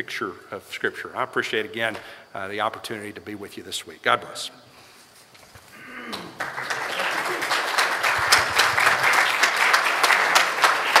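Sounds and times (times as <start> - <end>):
audience applauding: 6.1 - 11.0.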